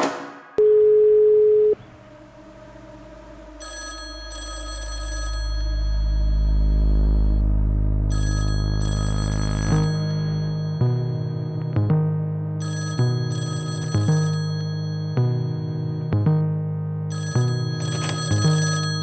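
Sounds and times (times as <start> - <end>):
telephone ringing: 0.6 - 1.8, 3.5 - 7.4, 8.1 - 11.8, 12.6 - 16.2, 17.1 - 19.0
low drone: 1.8 - 11.7.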